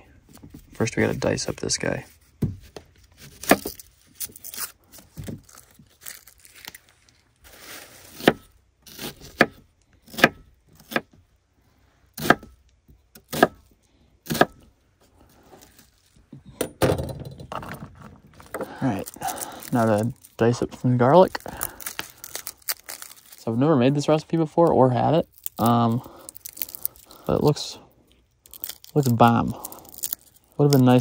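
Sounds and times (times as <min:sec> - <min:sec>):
soft rustling: 0:00.2 - 0:08.2, 0:15.0 - 0:16.4.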